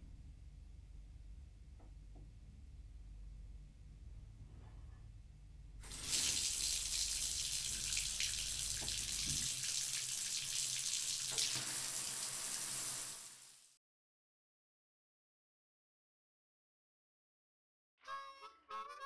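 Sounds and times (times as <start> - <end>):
shower running: 5.8 - 13.8.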